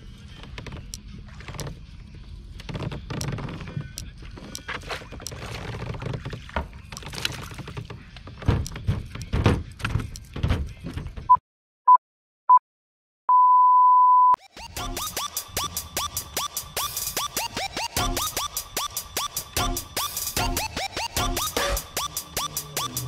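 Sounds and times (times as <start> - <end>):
fishing gear knocks and clicks: 2.5 - 11.2
short beep: 13.3 - 14.4.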